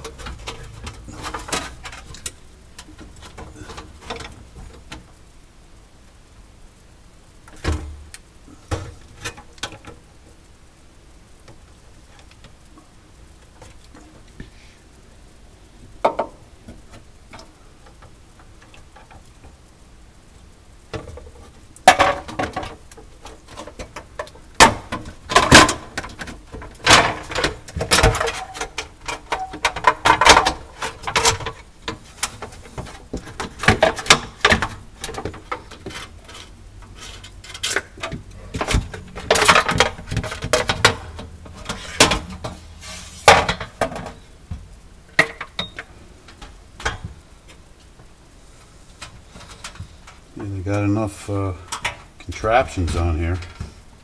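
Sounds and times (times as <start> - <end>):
knocks and clinks of parts handled: 20.9 - 42.6.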